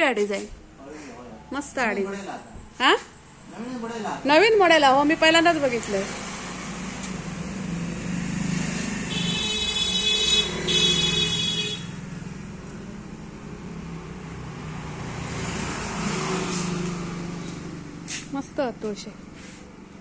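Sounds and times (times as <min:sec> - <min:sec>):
road traffic engine hum: 0:00.0 - 0:20.0
long horn blasts: 0:09.1 - 0:12.0.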